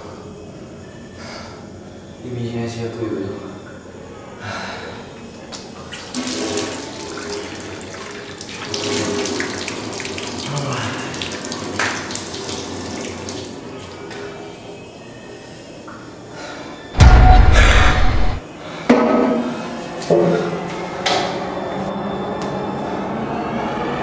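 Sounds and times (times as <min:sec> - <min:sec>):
water running from a tap: 0:05.9 - 0:13.7
water splashing on hands: 0:07.9 - 0:13.5.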